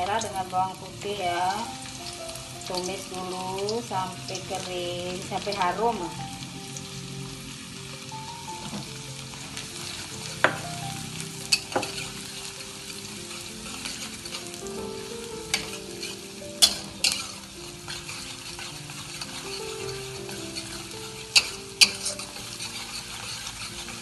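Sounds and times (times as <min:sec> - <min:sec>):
shallots and garlic sizzling in oil: 0:00.0 - 0:24.0
metal spatula scraping a wok: 0:11.4 - 0:24.0.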